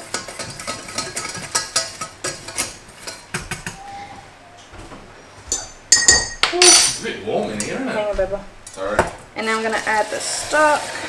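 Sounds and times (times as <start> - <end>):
whisk clinking in a metal saucepan: 0.0 - 3.8.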